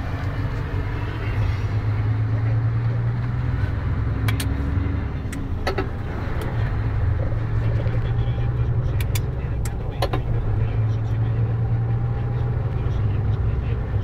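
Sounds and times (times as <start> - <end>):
truck engine and tyre drone: 0.0 - 14.0
sharp clicks: 4.2 - 4.6, 8.9 - 10.3.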